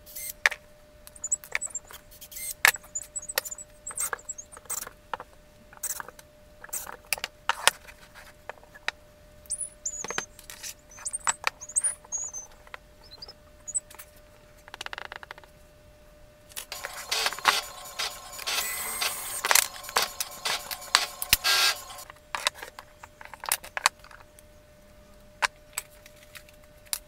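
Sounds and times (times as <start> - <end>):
faint steady hum: 0.0 - 27.0
short high squeaks: 1.1 - 4.8, 9.5 - 10.3, 10.9 - 13.9, 16.7 - 22.0.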